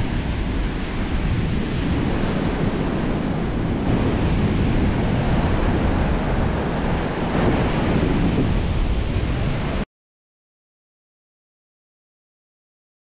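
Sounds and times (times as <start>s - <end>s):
surf breaking on a beach: 0.0s - 9.8s
wind buffeting the microphone: 0.0s - 9.8s.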